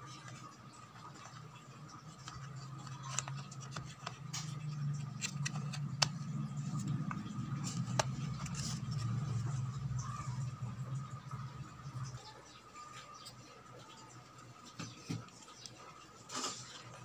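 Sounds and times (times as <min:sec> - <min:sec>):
low steady hum: 0:00.0 - 0:17.0
fingers rubbing plastic: 0:00.3 - 0:09.7
clicks and scrapes: 0:02.1 - 0:09.6.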